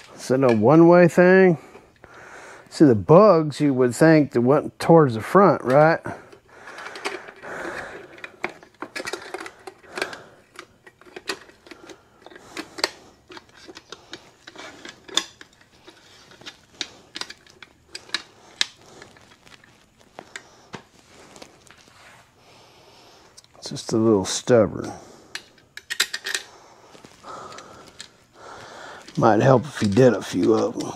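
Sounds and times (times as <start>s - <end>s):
headlamp parts clicking and knocking: 0.0s - 0.8s, 5.6s - 20.9s, 24.8s - 30.9s.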